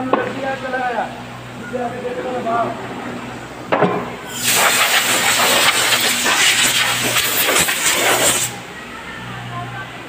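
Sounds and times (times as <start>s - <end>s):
compressed air hissing: 4.3s - 8.6s.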